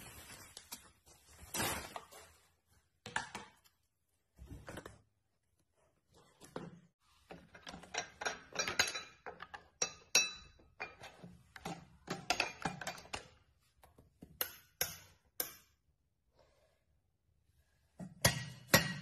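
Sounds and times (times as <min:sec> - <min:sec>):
mixer attachments clinking and rattling: 0:07.3 - 0:13.5.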